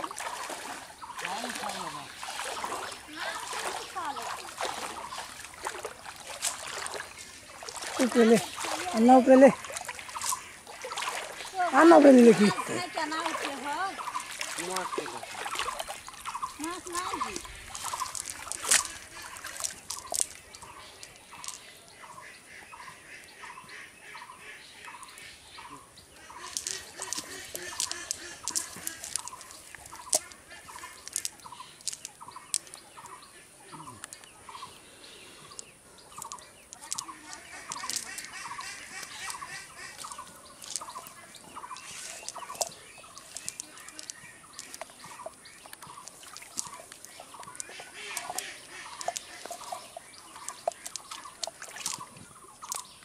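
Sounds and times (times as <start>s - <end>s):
high bird chirps: 12.5s - 53.0s.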